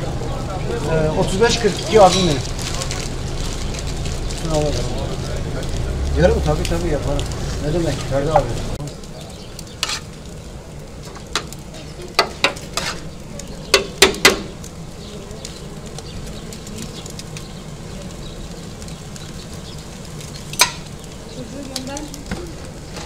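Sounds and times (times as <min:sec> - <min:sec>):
utensils clinking in steel pan: 0:01.8 - 0:02.6, 0:20.5 - 0:20.9.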